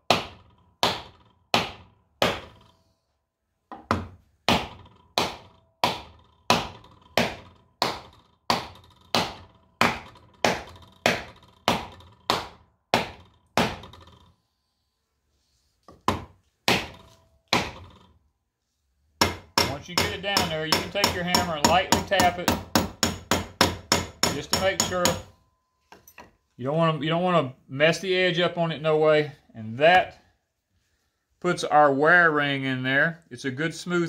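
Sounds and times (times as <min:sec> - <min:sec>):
hammer blows with metallic ring: 0:19.2 - 0:26.4.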